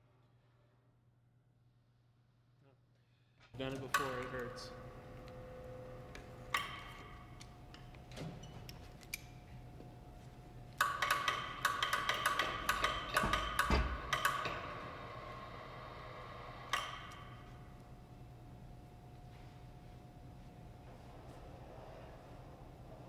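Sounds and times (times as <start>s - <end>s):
metallic clanks and clicks: 10.8s - 14.8s.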